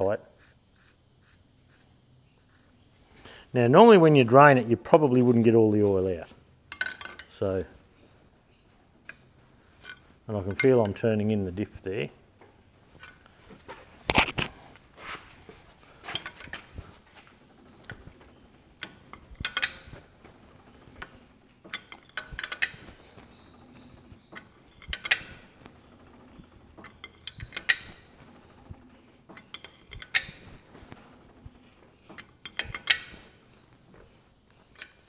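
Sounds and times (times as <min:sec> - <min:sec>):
metal clicks and clinks: 0:06.7 - 0:07.4, 0:18.8 - 0:20.0, 0:21.0 - 0:22.9, 0:24.3 - 0:25.4, 0:26.0 - 0:28.1, 0:29.3 - 0:30.5, 0:32.1 - 0:33.3, 0:34.7 - 0:35.0.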